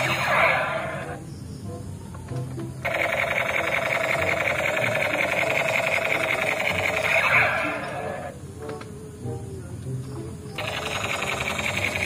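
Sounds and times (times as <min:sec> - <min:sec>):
toy gun electronic buzzing rattle: 0:00.0 - 0:01.2, 0:02.8 - 0:08.3, 0:10.6 - 0:12.0.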